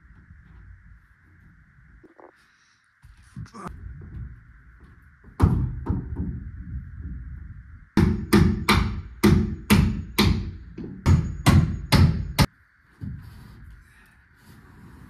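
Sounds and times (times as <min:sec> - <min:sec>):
hammer nailing into wood: 0:08.0 - 0:12.5.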